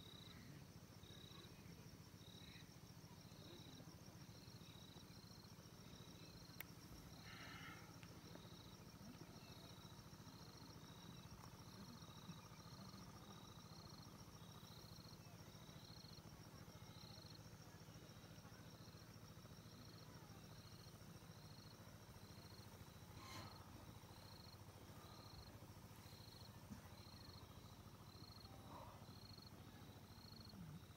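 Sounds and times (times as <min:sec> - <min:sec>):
insect chorus trilling: 0:00.0 - 0:30.9
faint click: 0:06.5 - 0:06.8.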